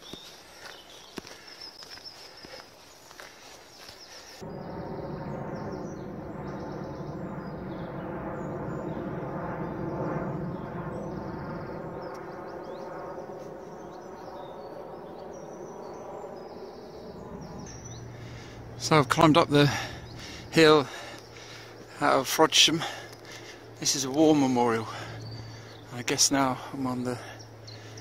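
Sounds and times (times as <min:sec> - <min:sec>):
footsteps on leaf litter: 0:00.0 - 0:04.4
songbirds chirping: 0:00.0 - 0:28.0
low background rumble: 0:04.4 - 0:22.1, 0:22.9 - 0:28.0.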